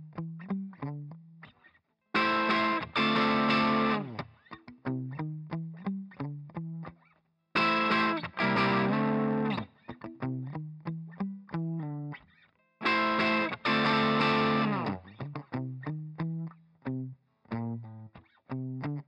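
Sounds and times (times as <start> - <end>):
distorted guitar chords: 2.2 - 4.2, 7.6 - 12.1, 12.8 - 17.8
plucked electric guitar notes: 2.2 - 6.9, 7.6 - 12.2, 12.8 - 19.0.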